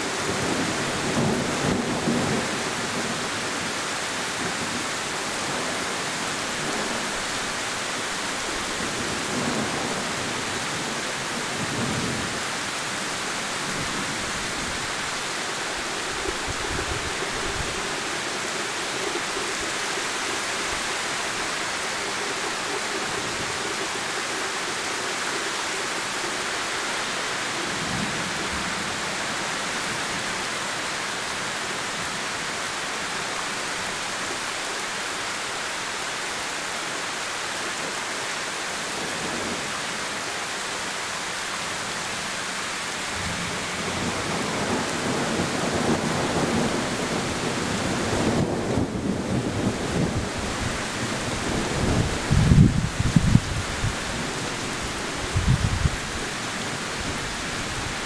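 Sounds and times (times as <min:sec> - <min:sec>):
heavy rain pouring: 0:00.0 - 0:58.0
thunder rumbles: 0:43.2 - 0:56.2.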